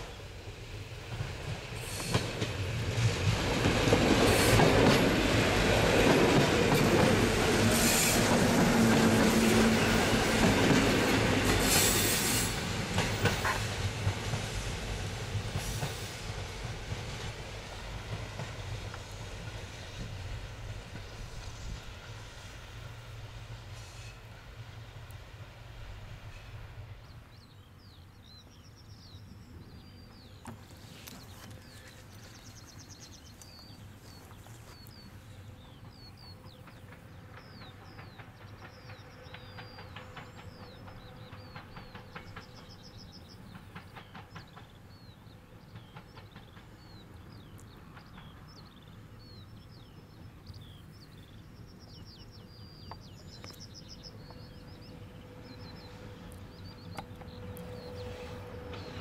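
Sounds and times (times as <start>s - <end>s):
distant train rumble: 0.0s - 59.0s
small birds chirping: 27.0s - 59.0s.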